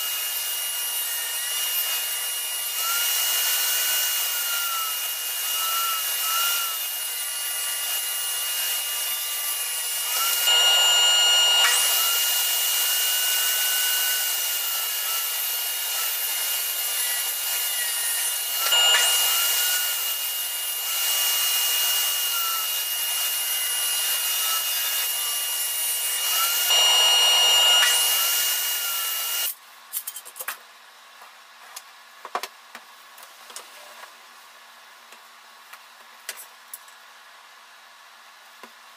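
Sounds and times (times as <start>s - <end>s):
saw blade cutting wood: 0.0s - 29.6s
table saw whining: 0.0s - 29.6s.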